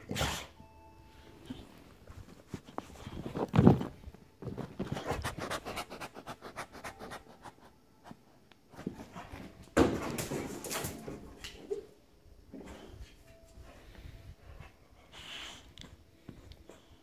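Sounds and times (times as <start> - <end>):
handling noise: 1.7 - 5.5
rustling scuffle: 1.7 - 5.5
dog panting hard: 4.8 - 7.3.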